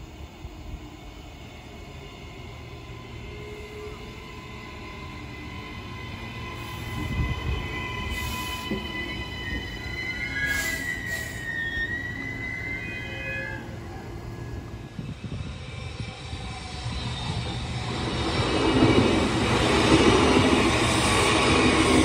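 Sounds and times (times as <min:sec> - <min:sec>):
train high whine: 0:00.0 - 0:22.0
train wheels rumbling on rails: 0:00.0 - 0:22.0
brief air hisses: 0:08.1 - 0:08.9, 0:10.3 - 0:12.1.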